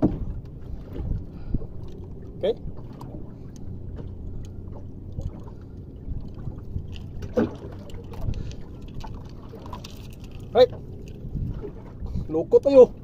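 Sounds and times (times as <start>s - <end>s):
boat engine idling: 0.0s - 13.0s
light clicks of hook and lure: 3.5s - 5.4s, 6.2s - 11.3s.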